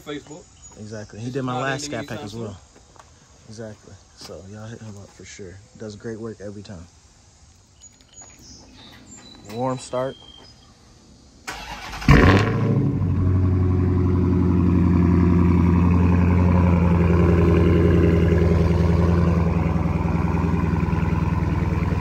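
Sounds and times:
loud car engine idling: 12.1 - 22.0.

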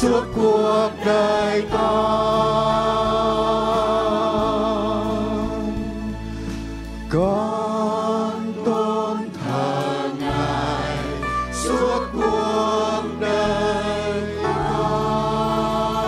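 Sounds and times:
choir singing: 0.0 - 6.3, 7.1 - 16.0.

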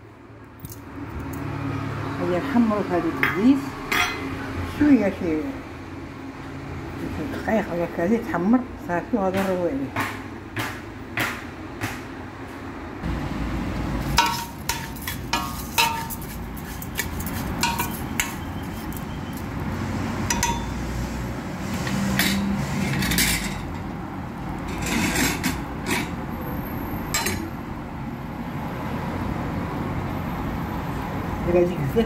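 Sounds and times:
metal spoon scraping a pot: 14.0 - 19.5, 21.6 - 23.8, 24.6 - 26.2, 27.1 - 27.5.

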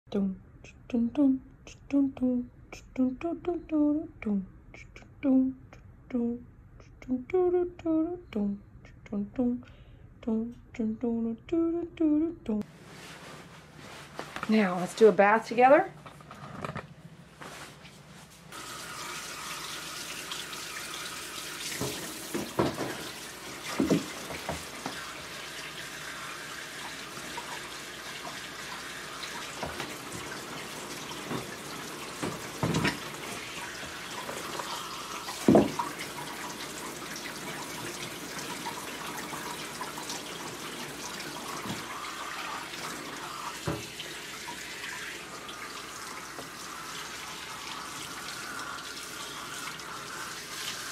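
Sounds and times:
tap water running into bathtub: 18.5 - 50.9
knocks and thumps: 23.7 - 24.7, 35.5 - 35.8.

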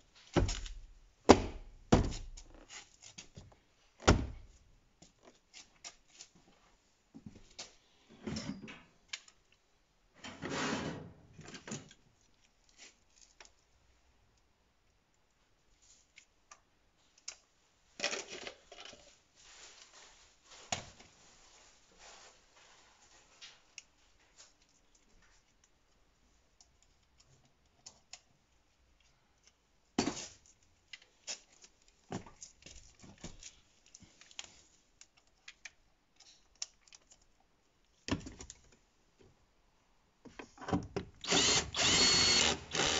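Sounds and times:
small parts and tools clicking: 33.4 - 37.5.

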